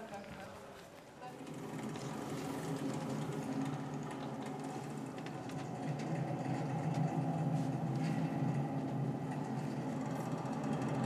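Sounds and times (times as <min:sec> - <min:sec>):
low droning music: 0:01.4 - 0:11.0.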